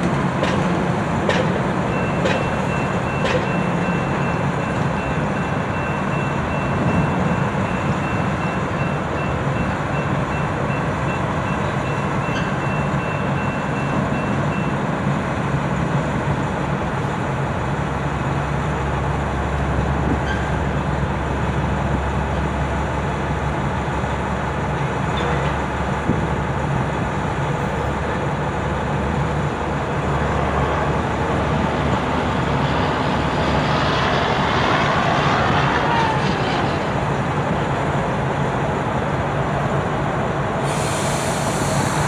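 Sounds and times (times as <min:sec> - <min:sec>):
loud rushing noise: 0:29.8 - 0:42.0.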